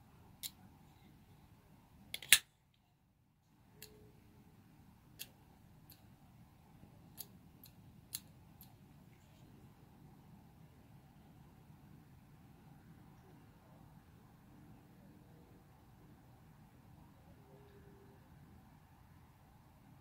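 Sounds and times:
knife handling clicks: 2.2 - 2.4.

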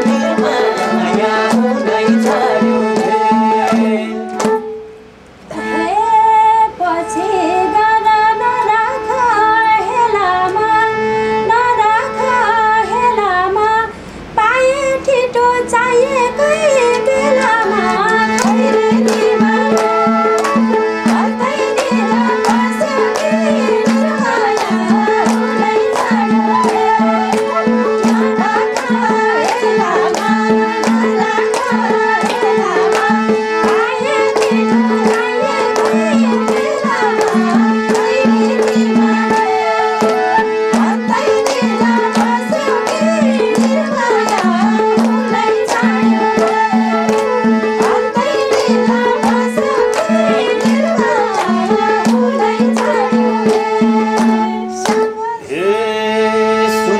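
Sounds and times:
hands clapping: 0.0 - 4.6, 17.4 - 55.2
hand drum beat: 0.0 - 4.7, 16.8 - 55.2
women singing: 0.0 - 4.7, 5.5 - 56.9
harmonium drone: 0.0 - 56.9.

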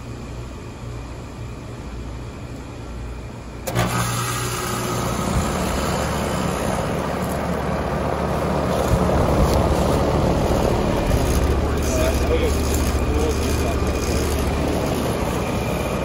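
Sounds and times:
compressor hum: 0.0 - 16.0
refrigerant whoosh and hiss: 3.9 - 16.0.

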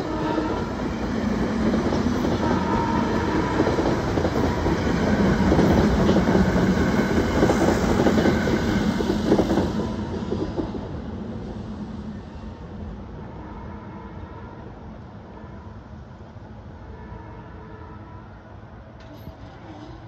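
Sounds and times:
train wheels clattering over rails: 0.0 - 11.0.

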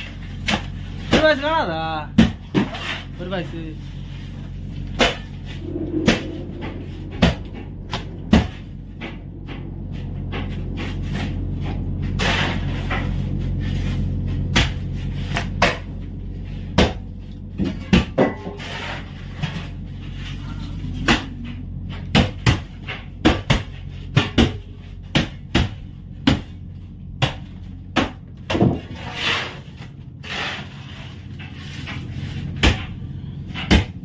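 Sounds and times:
low steady hum: 0.0 - 34.0.

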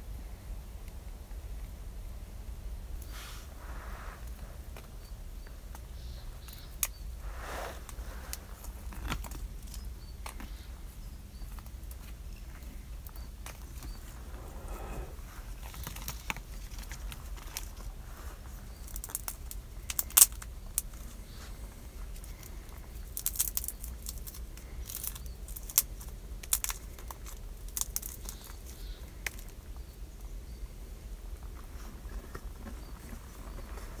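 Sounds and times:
low steady rumble: 0.0 - 34.0
chestnut shells cracking: 18.8 - 21.0, 22.2 - 29.6.

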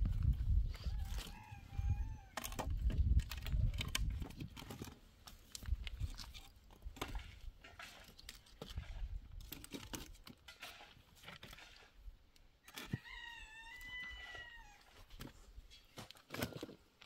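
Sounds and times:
rooster crowing: 0.8 - 2.4, 12.8 - 14.9.

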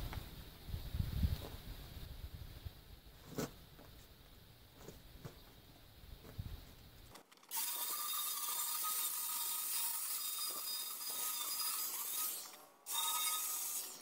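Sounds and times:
angle grinder whining: 7.5 - 14.0.

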